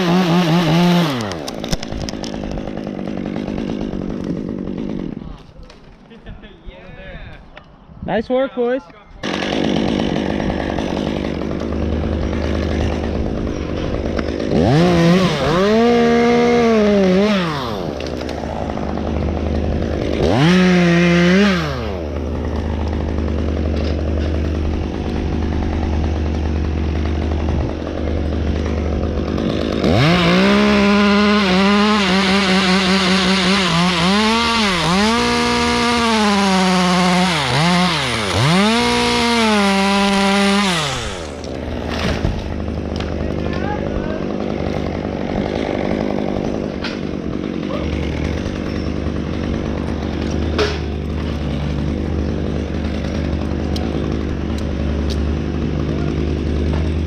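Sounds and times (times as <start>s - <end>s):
chainsaw revving and cutting wood: 0.0s - 6.4s, 9.2s - 57.0s.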